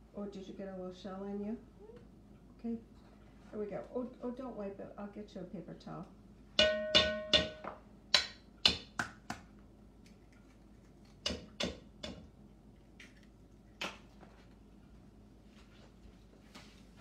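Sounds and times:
bowl ringing: 0:06.6 - 0:07.7
eggs tapping metal bowl: 0:06.6 - 0:09.4, 0:11.2 - 0:12.3.

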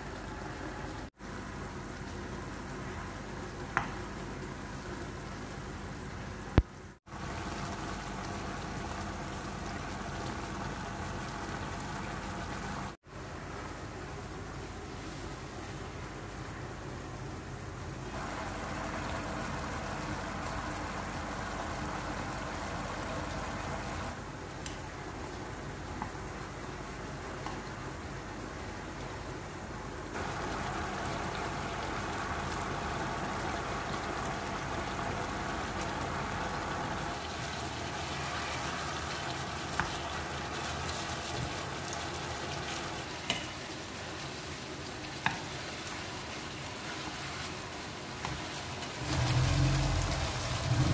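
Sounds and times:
sauce bubbling and sizzling in a pan: 0:18.0 - 0:24.2, 0:30.1 - 0:50.9.

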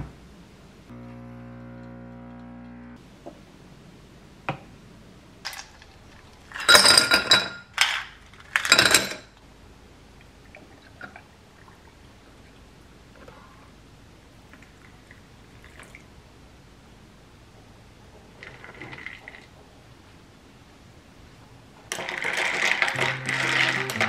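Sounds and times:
coffee machine humming: 0:00.9 - 0:03.1, 0:22.0 - 0:24.0
ice cubes clattering into glass: 0:05.5 - 0:09.2, 0:21.9 - 0:24.0
milk pouring over ice: 0:21.9 - 0:24.0.

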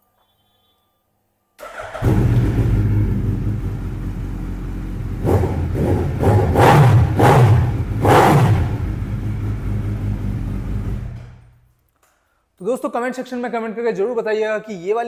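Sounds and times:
motorcycle engine running: 0:02.0 - 0:11.4.

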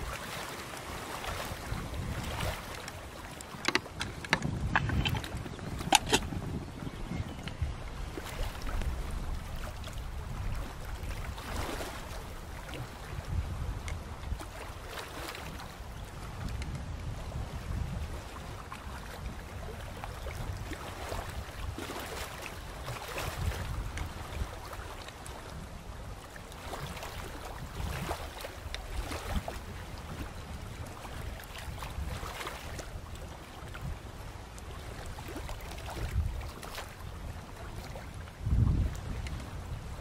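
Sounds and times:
wind buffeting microphone: 0:00.0 - 0:40.0.

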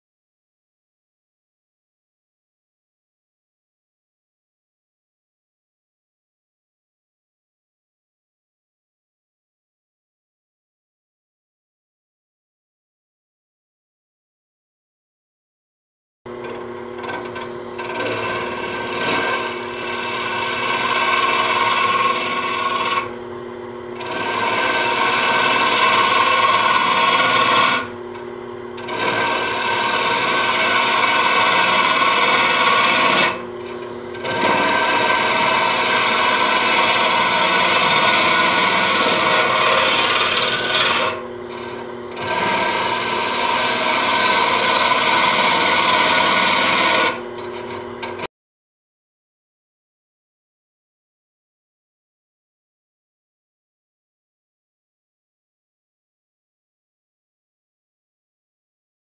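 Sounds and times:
cutter scraping wood on lathe: 0:16.4 - 0:23.1, 0:24.0 - 0:27.9, 0:28.8 - 0:48.3
lathe humming: 0:16.4 - 0:23.2, 0:24.0 - 0:27.9, 0:28.8 - 0:48.3.

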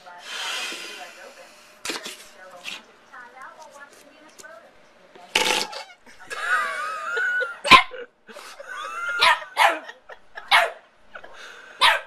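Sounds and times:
dog barking: 0:07.7 - 0:08.0, 0:09.2 - 0:10.8, 0:11.8 - 0:12.0.

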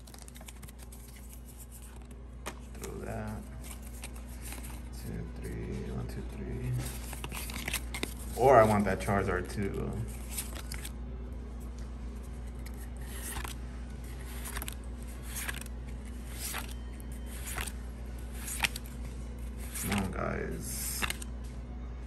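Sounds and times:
cards sliding swish: 0:19.6 - 0:20.2.

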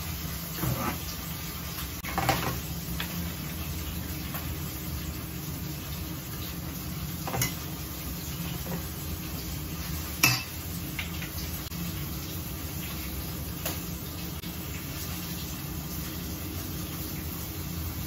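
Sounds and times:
spoon clinking dishware: 0:07.2 - 0:07.6, 0:10.2 - 0:10.6.

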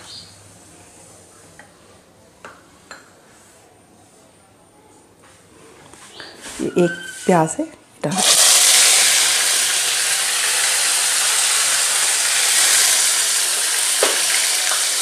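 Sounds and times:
onion sizzling in hot oil: 0:08.1 - 0:15.0.

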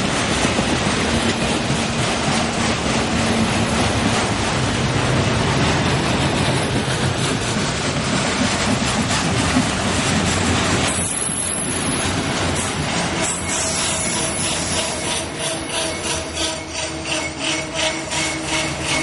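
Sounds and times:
train wheels running on rails: 0:00.0 - 0:19.0.

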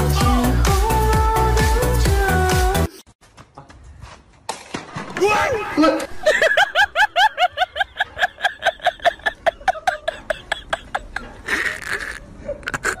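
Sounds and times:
high-pitched giggling laughter: 0:06.2 - 0:13.0.

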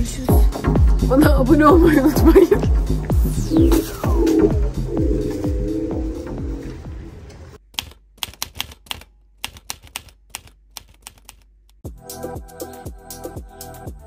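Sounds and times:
music with steady beat: 0:00.0 - 0:07.0, 0:11.8 - 0:14.0
electronic music: 0:00.0 - 0:07.3, 0:11.9 - 0:14.0.

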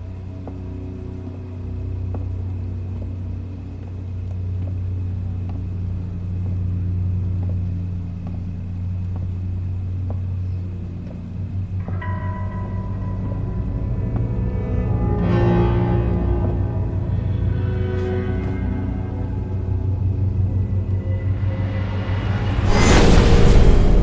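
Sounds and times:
faint footsteps on pavement: 0:00.0 - 0:15.3, 0:17.8 - 0:20.1
suspense film score drone: 0:00.0 - 0:24.0.

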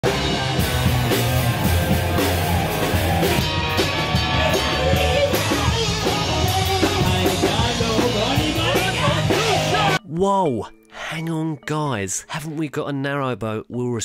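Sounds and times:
rock music with singing: 0:00.0 - 0:10.0.

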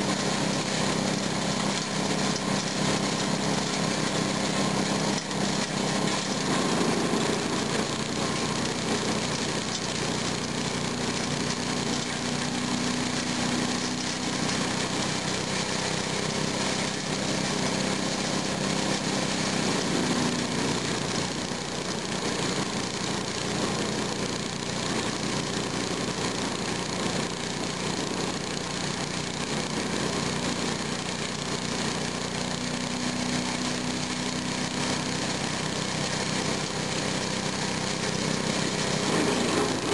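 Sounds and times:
branches being shredded: 0:00.0 - 0:22.8
chipper shredder engine running: 0:00.0 - 0:39.9.

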